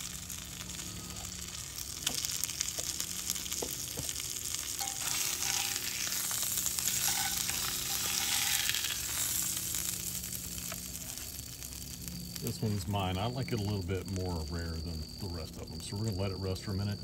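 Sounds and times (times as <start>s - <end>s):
steak sizzling in oil: 0.0s - 12.9s.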